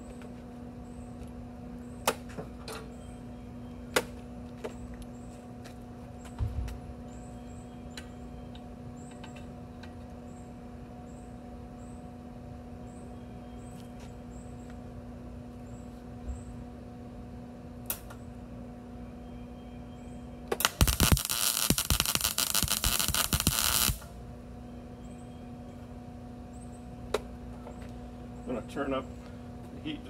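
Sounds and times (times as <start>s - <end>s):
steady hum: 0.0s - 30.0s
welding arc crackling: 20.6s - 24.1s.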